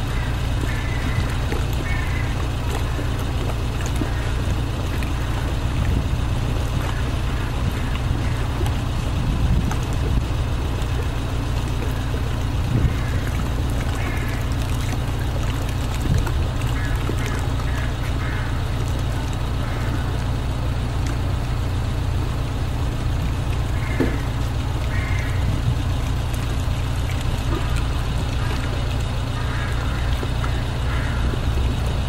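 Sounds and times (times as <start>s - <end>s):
city background rumble: 0.0s - 32.0s
mallard quacks: 0.1s - 2.9s, 16.8s - 18.7s, 23.7s - 25.6s, 29.3s - 31.7s.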